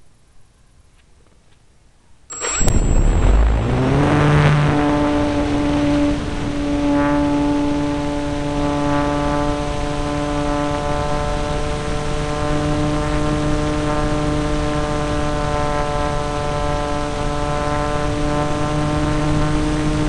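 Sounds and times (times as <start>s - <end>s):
rush of air: 2.3s - 6.6s
model airplane motor and propeller: 2.3s - 20.0s.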